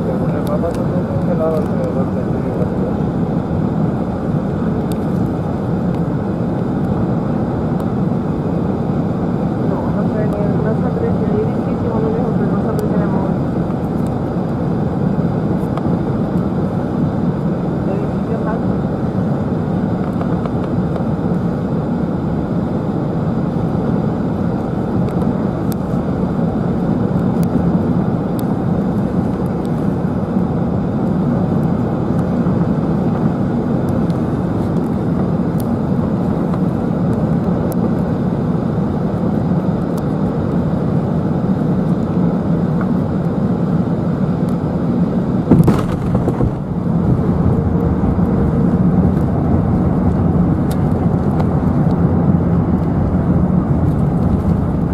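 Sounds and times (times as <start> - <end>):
airflow rushing in aircraft cabin: 0.0 - 54.9
jet engines humming: 0.0 - 54.9
plane rumbling on runway: 0.0 - 54.9
landing gear touchdown thud: 45.5 - 46.6.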